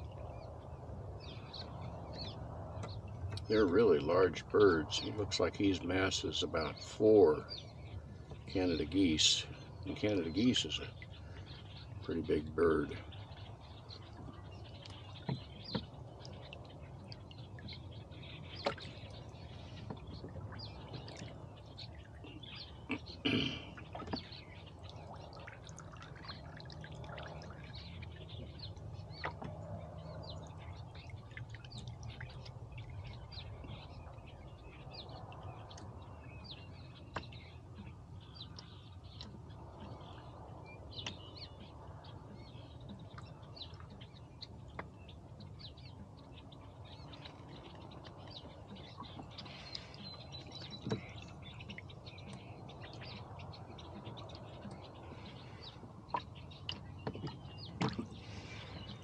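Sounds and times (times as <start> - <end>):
birds chirping: 0.0 - 59.0.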